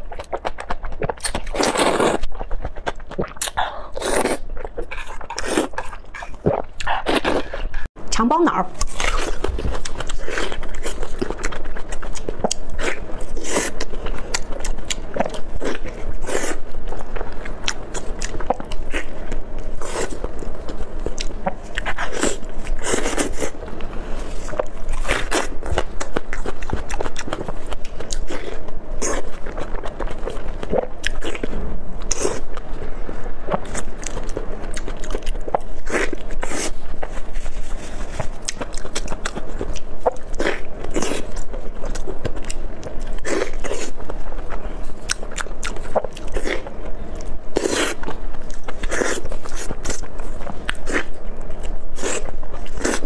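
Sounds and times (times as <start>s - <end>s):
person chewing: 0.0s - 7.9s, 8.7s - 32.7s, 33.4s - 53.0s.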